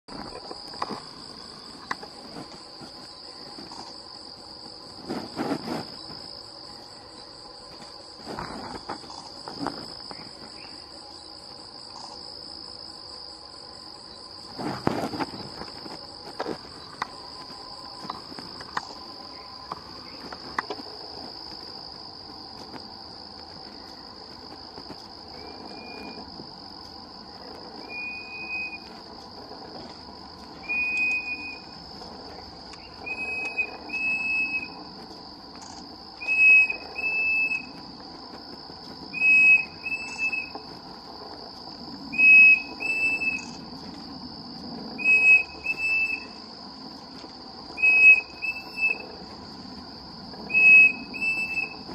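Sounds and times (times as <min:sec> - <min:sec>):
high insect buzz: 0:00.1 - 0:51.9
cuckoo whistling: 0:39.1 - 0:40.6, 0:42.1 - 0:43.6, 0:45.0 - 0:46.4, 0:47.8 - 0:49.0, 0:50.5 - 0:51.8.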